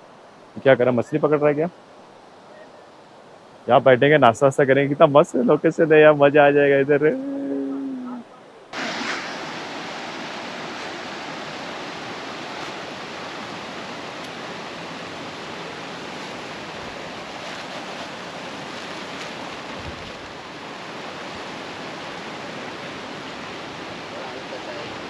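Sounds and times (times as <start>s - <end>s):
stream rushing over stones: 8.7s - 25.0s.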